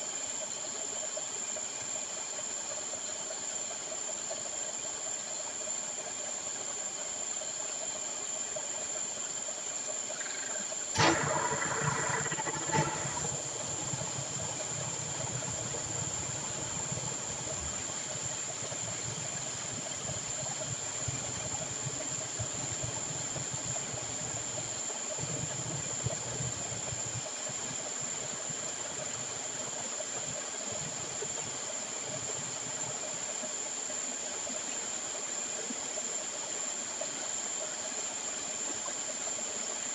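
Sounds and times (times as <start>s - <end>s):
slurry rushing through a pipe: 10.9s - 24.6s.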